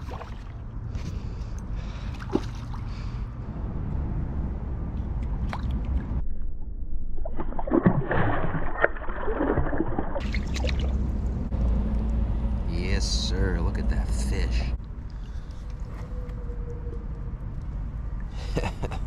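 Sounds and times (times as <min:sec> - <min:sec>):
fish thrashing and splashing: 0:07.2 - 0:11.0.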